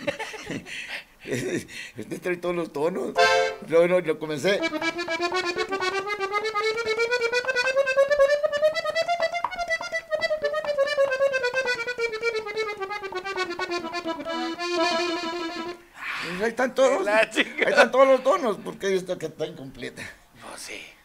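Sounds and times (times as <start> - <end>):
button accordion playing a run: 3.2 - 3.6, 4.5 - 15.8.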